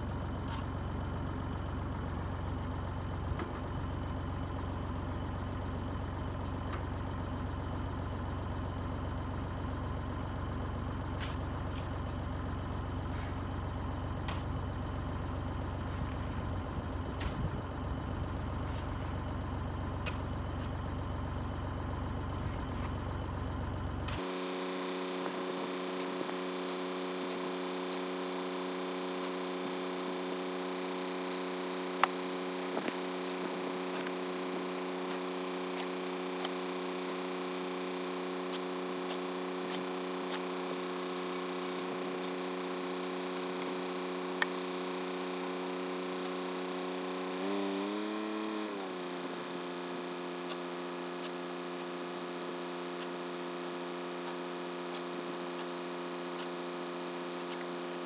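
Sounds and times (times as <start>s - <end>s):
tractor engine idling: 0.0s - 47.0s.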